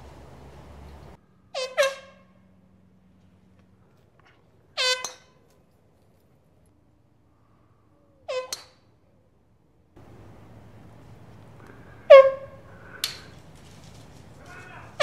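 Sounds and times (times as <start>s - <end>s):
air horn honks: 1.5s - 2.4s, 12.1s - 12.7s.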